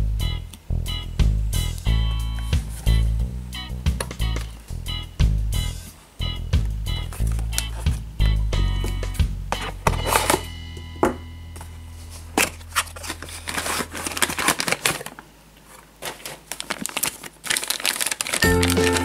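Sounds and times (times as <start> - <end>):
background music: 0.0 - 11.6, 18.4 - 19.0
plastic bag crinkling: 7.0 - 8.0, 12.1 - 19.0
cardboard packaging rustling: 7.0 - 8.2, 8.8 - 10.5, 11.6 - 19.0.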